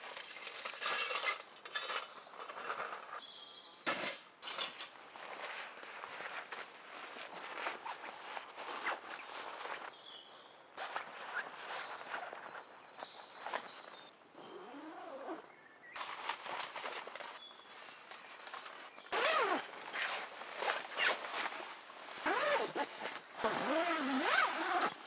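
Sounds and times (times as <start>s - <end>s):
tent fabric rustling: 4.8s - 15.4s, 16.0s - 25.0s
fabric rubbing squeaks: 5.4s - 9.9s, 10.8s - 15.4s, 19.1s - 25.0s.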